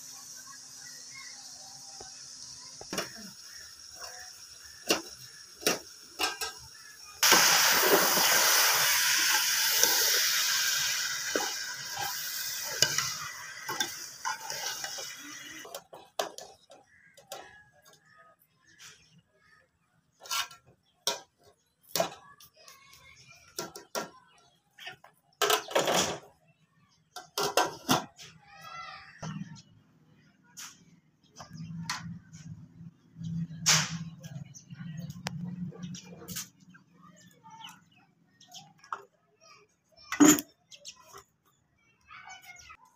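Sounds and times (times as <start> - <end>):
vegetables sizzling in a pot: 0.0 - 15.8.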